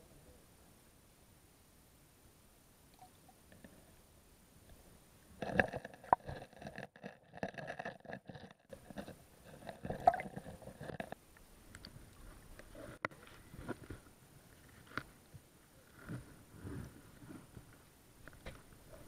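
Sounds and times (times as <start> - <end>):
muffled underwater knocks and scrapes: 5.4 - 11.2, 16.0 - 17.8.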